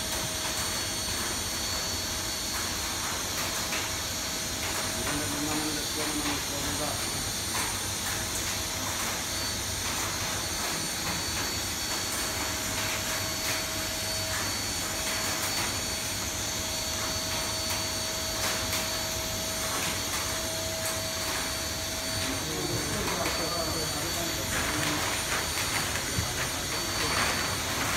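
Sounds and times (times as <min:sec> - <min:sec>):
vacuum cleaner running: 0:00.0 - 0:27.9
foil crinkling: 0:22.3 - 0:27.9.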